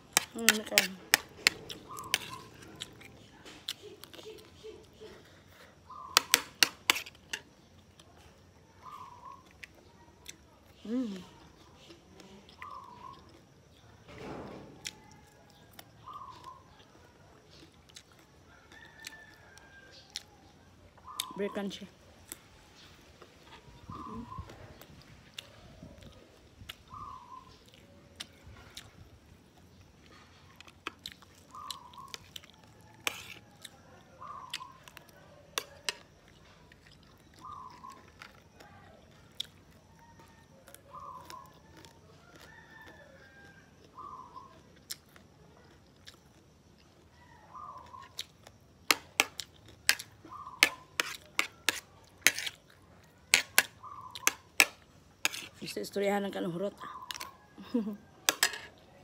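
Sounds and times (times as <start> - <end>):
close chewing: 0.0 - 14.1, 14.8 - 21.4, 22.1 - 59.0
metal spoon scraping a plate: 0.2 - 3.2, 6.2 - 7.4, 50.6 - 52.6, 53.3 - 55.6, 58.3 - 58.7
bird call: 50.2 - 51.0.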